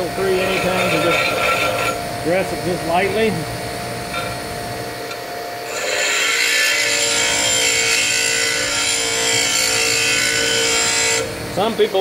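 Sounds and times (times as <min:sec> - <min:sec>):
metal grinding with high ring: 0:00.0 - 0:02.8, 0:05.6 - 0:11.4
bench grinder humming: 0:00.0 - 0:12.0.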